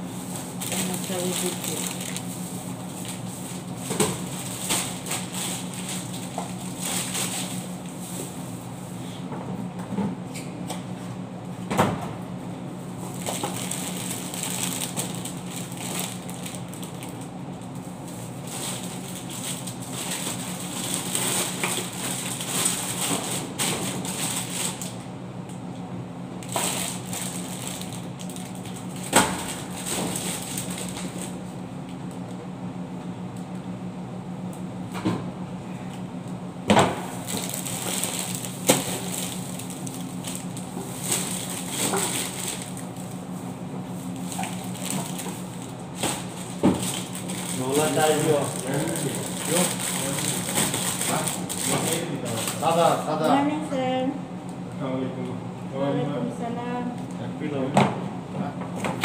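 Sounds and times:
steady low hum: 0.0 - 59.0
plastic packets crinkling: 0.5 - 3.2, 4.2 - 7.7, 13.1 - 17.3, 18.4 - 25.0, 26.4 - 31.4, 37.2 - 43.2, 44.2 - 53.0.

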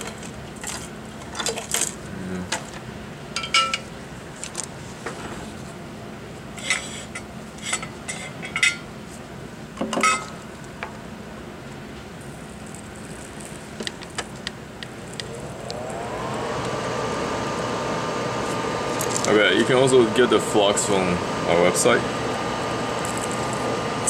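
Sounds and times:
small fan motor whining: 12.6 - 24.0.

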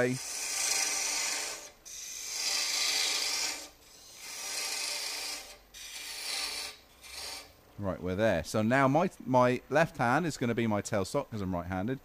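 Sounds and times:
lathe tool cutting wood: 0.0 - 7.5.

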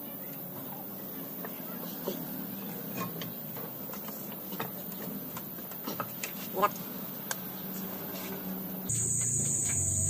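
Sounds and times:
steady low hum: 7.9 - 10.0.

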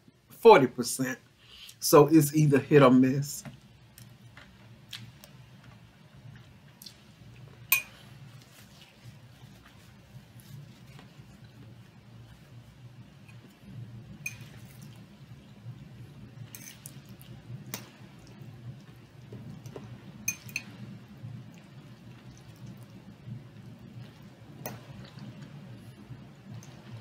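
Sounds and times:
low steady hum: 0.0 - 27.0
fork clinking against bowl: 7.7 - 8.0.

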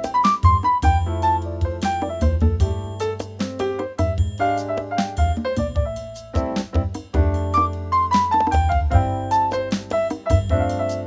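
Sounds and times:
light percussion strikes: 0.0 - 11.0
steady bass: 5.2 - 11.0.

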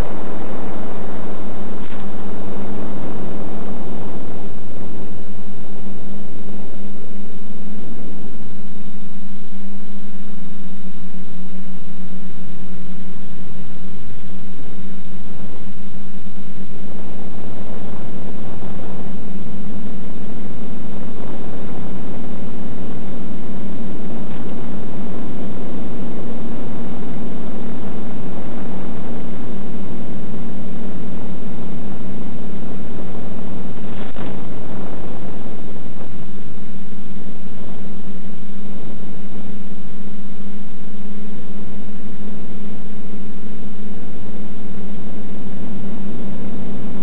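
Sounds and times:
brief crackle: 0.0 - 2.8, 33.8 - 36.2
loud steady hiss: 0.0 - 47.0
low hum: 0.0 - 47.0.

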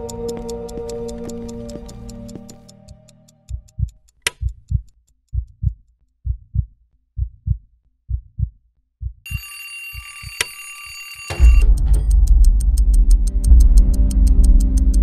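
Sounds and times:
clock ticking: 0.0 - 6.6, 11.3 - 15.0
heartbeat thumps: 0.0 - 9.5, 11.4 - 15.0
sharp click: 4.1 - 4.6
alarm clock ringing: 9.3 - 11.7.

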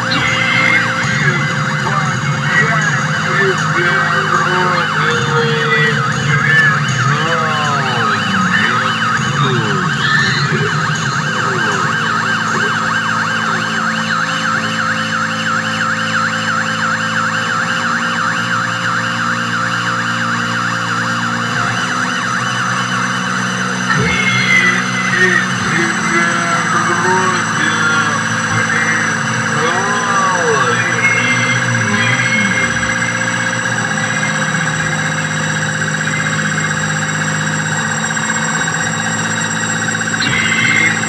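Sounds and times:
steady low drone: 0.0 - 41.0
warbling siren-like tone: 0.0 - 41.0.

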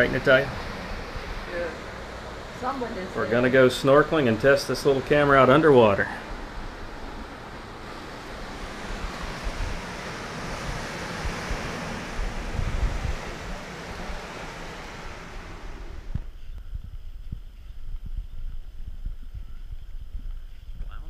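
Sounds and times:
ocean surf washing: 0.0 - 16.2
wind buffeting microphone: 0.0 - 21.0.

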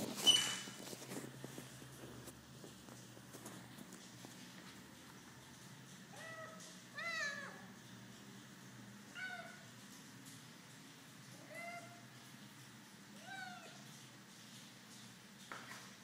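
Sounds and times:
cat meowing: 13.2 - 13.8.

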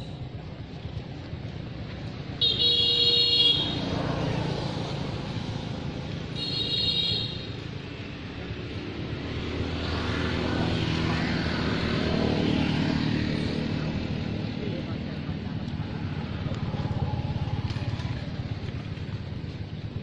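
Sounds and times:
low rumble of road traffic: 0.0 - 20.0
vehicle horn toots: 2.4 - 3.9, 6.4 - 7.5.

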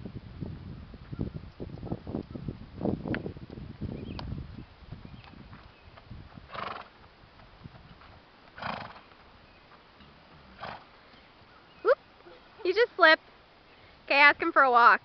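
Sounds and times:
faint hoofbeats on dirt: 1.0 - 14.3
horse snorting: 6.5 - 7.0, 8.6 - 9.1, 10.0 - 11.2.

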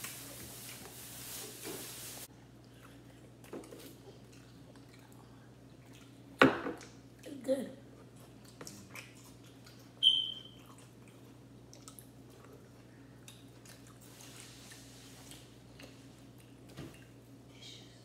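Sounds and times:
people chewing and biting: 2.4 - 7.2, 8.0 - 17.2.

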